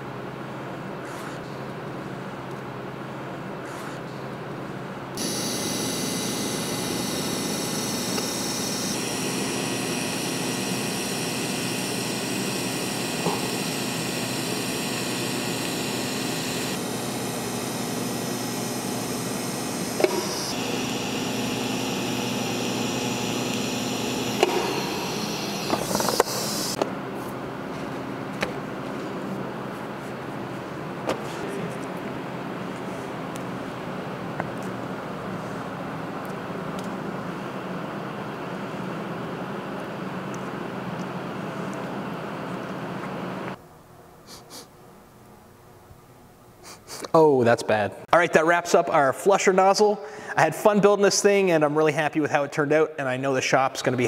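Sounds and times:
welding arc hissing: 0:05.2 - 0:26.8.

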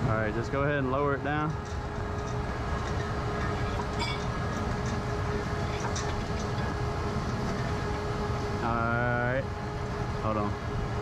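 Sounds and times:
constant faint hum: 0:00.0 - 0:11.0
steady low rumble: 0:00.0 - 0:11.0.

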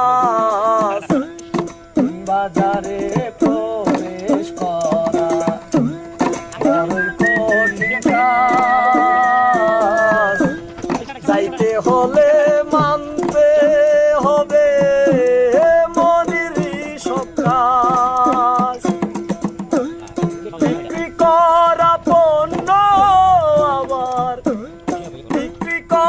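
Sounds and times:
hand percussion: 0:00.0 - 0:26.0
person singing wavering melody: 0:00.0 - 0:26.0
steady held note: 0:21.7 - 0:25.1.

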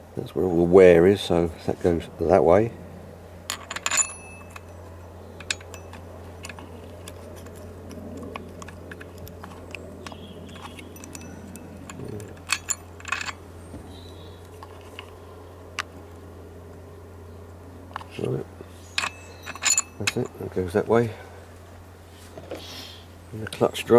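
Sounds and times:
steady low hum: 0:00.0 - 0:23.9
small metal parts clinking: 0:03.5 - 0:16.0, 0:17.9 - 0:20.7.

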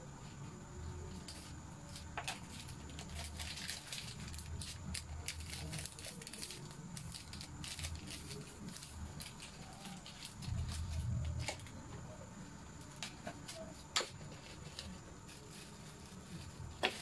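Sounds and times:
low steady rumble: 0:06.7 - 0:13.1.

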